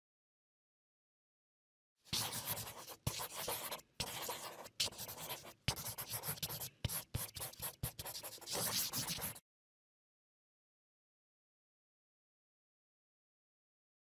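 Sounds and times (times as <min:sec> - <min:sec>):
marker scratching on paper: 0:02.1 - 0:09.4
marker tapping on paper: 0:02.2 - 0:09.4.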